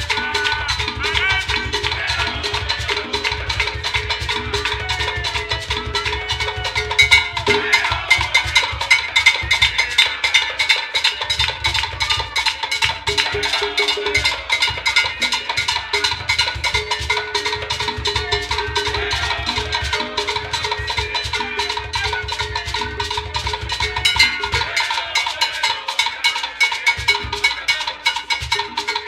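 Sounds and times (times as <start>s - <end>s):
pulsing low drum: 0.0s - 10.0s
hand drums playing rumba: 0.0s - 29.0s.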